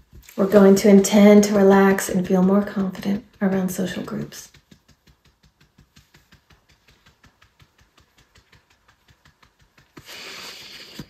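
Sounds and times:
fingertip tapping on body: 0.0 - 11.0
person breathing: 10.0 - 11.0.

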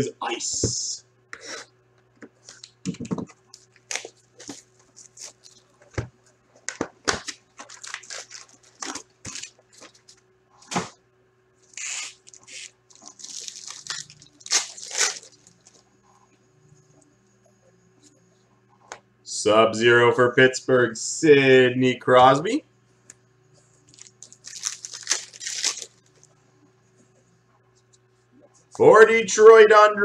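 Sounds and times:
foil packs crinkling: 3.5 - 5.7, 6.7 - 10.2, 11.6 - 15.8, 23.9 - 26.2
wrap being cut and torn: 11.7 - 12.7.

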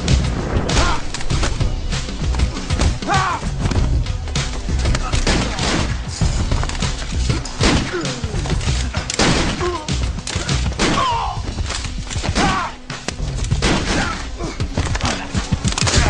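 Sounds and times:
music: 0.0 - 16.0
grunts and shouts: 2.4 - 3.7, 7.3 - 11.5, 12.2 - 12.9, 13.8 - 16.0.

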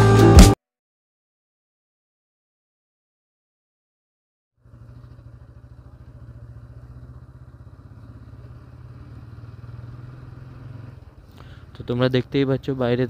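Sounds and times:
motorcycle engine running: 4.6 - 13.0.

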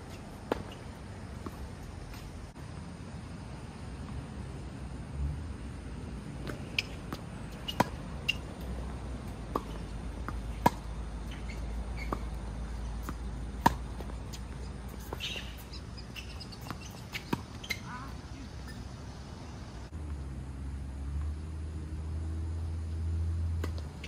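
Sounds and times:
tennis ball bouncing: 0.1 - 2.3, 6.4 - 17.9, 23.6 - 24.0
rackets striking tennis ball: 6.4 - 17.9.

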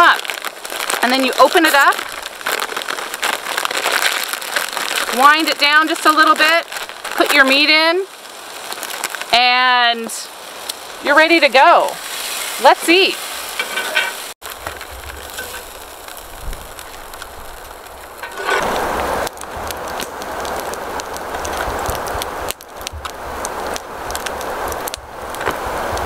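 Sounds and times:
foil bag crinkling: 0.0 - 9.4, 11.9 - 22.8
wind rumble on microphone: 14.4 - 26.0.

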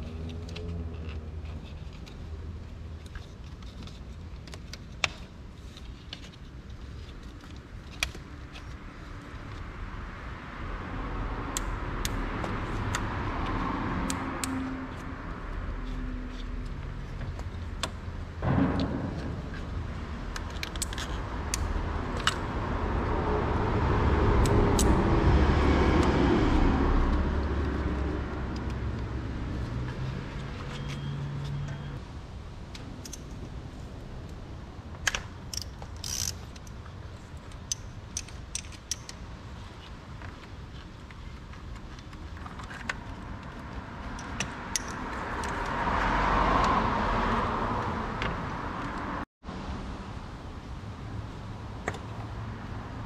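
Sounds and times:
vehicles passing by: 0.0 - 53.0
knock: 18.4 - 20.2
low rumble: 18.4 - 22.1.

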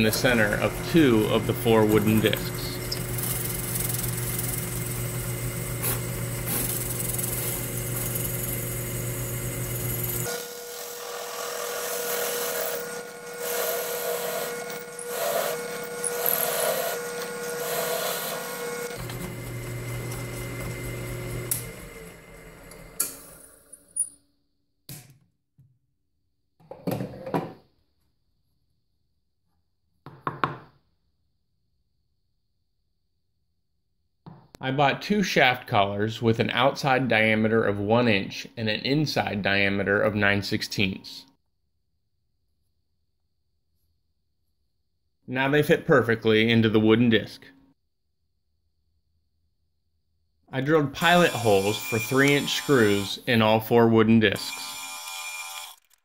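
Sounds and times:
hole saw cutting wood: 0.0 - 23.3, 50.9 - 56.0
drill press motor hum: 0.0 - 24.1, 51.0 - 53.6, 54.4 - 56.0.

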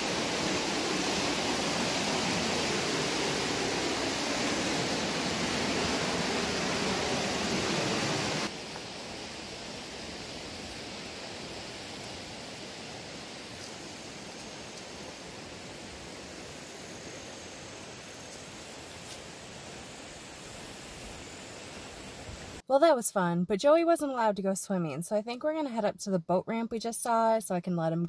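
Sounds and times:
river water rushing over rocks: 0.0 - 8.5.

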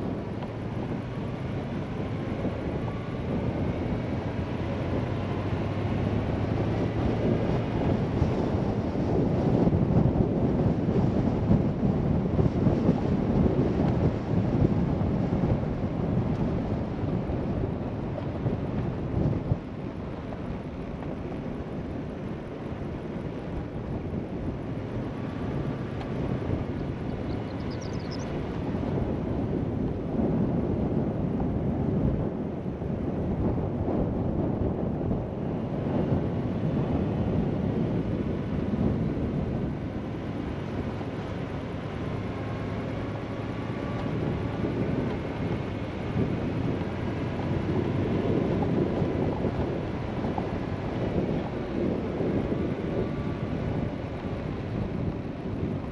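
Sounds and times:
vehicle on dirt road rumble: 0.0 - 55.9.

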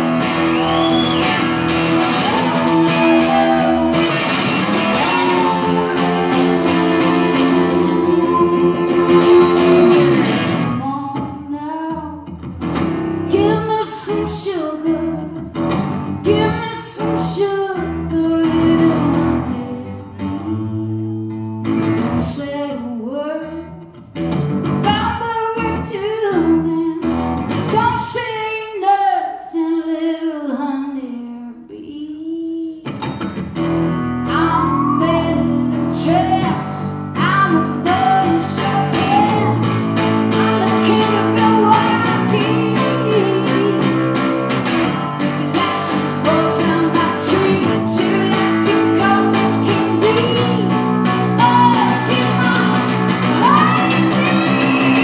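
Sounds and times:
drums: 0.0 - 8.0
bass: 0.0 - 28.5, 32.9 - 55.0
electric guitar: 0.0 - 29.4, 32.8 - 55.0
woman singing: 2.0 - 12.4, 13.2 - 23.9, 24.8 - 33.1, 34.2 - 44.4, 45.2 - 55.0.

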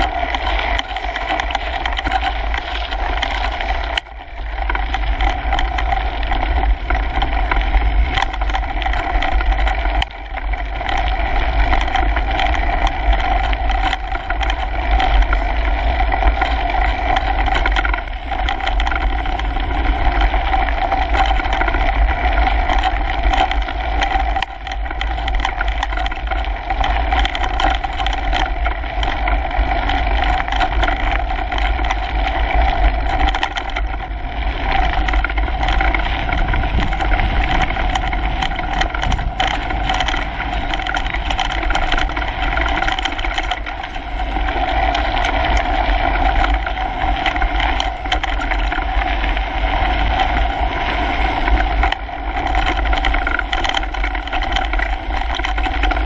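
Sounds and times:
bike rattling and knocking: 0.0 - 56.0
bike tyre noise on dirt: 0.0 - 56.0
drivetrain hum: 0.0 - 56.0.

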